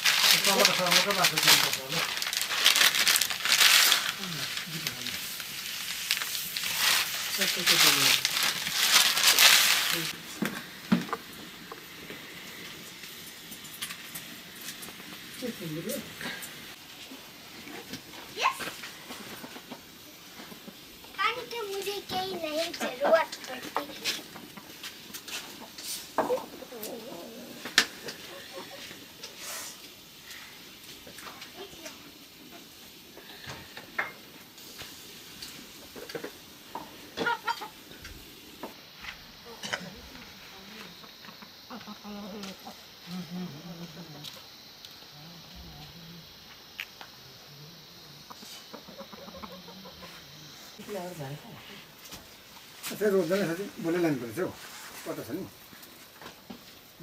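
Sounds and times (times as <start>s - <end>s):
water boiling and bubbling: 0.0s - 21.9s.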